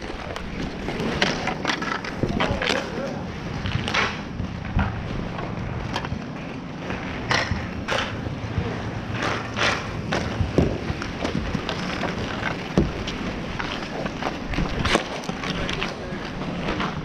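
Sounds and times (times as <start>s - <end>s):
skate and stick scrapes and clacks: 0.0s - 17.0s
skate wheels rolling on asphalt: 0.0s - 17.0s.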